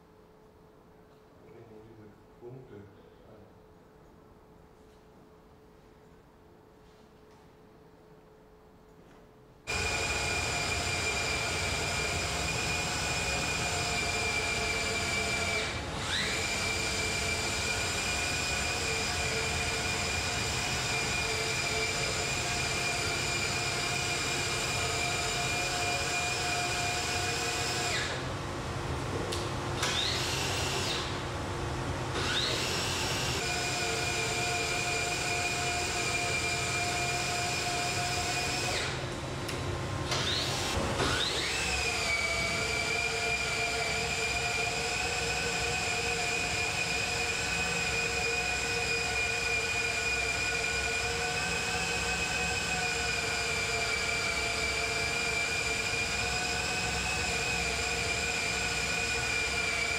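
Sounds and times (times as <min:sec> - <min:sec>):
electric motor whine: 0:09.7 - 0:28.2, 0:29.8 - 0:31.2, 0:32.1 - 0:39.0, 0:40.1 - 0:59.9.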